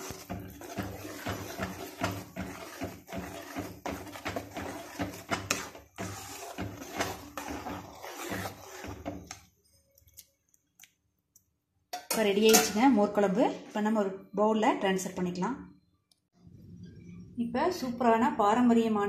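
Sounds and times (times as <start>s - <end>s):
metal spoon stirring in a pan: 0.0s - 10.2s.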